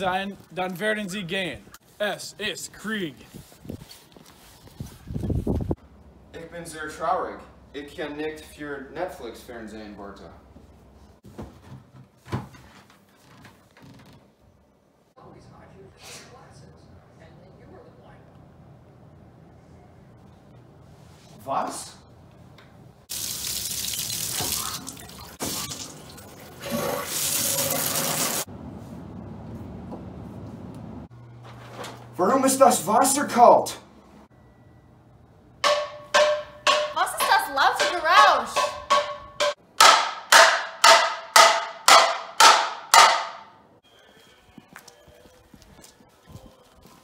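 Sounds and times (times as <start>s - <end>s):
shower water spraying into tub: 23.1s - 28.5s.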